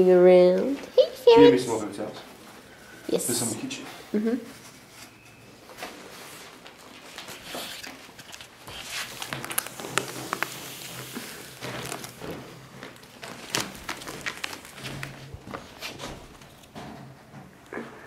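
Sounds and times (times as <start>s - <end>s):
plastic tube rustling and crackling: 4.4s - 18.0s
ferrets scrabbling: 7.0s - 16.8s.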